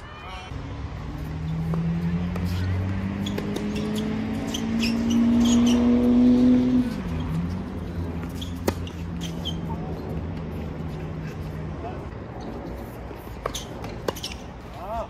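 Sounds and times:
vehicle engine revving: 0.5s - 10.6s.

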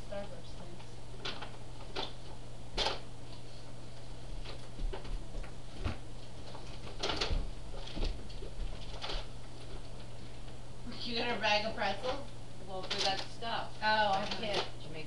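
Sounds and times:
packaging rustling and knocking: 4.4s - 10.1s.

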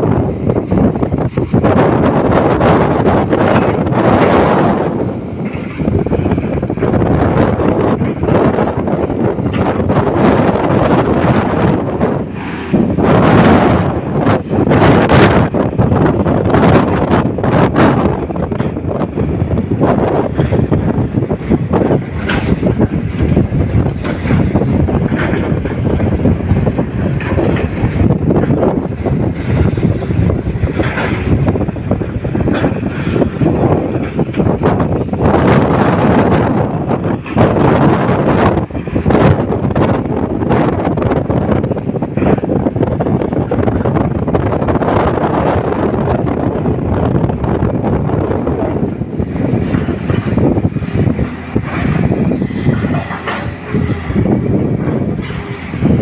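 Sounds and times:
diesel truck engine rumble: 0.0s - 56.0s
truck bed rattling: 0.0s - 56.0s
wind buffeting microphone: 0.0s - 56.0s
crackle of earth: 48.2s - 55.9s.

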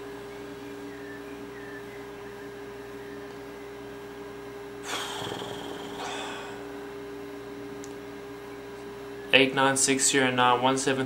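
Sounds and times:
electrical hum: 0.0s - 11.0s
sharp breath through nose: 4.8s - 6.6s
soft breath out: 4.8s - 6.7s.

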